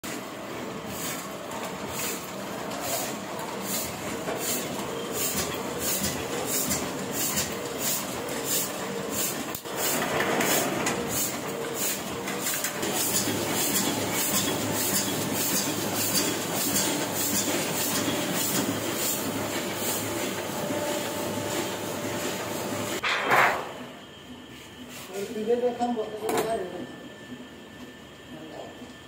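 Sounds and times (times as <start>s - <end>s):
printing press clattering: 0.6s - 23.0s.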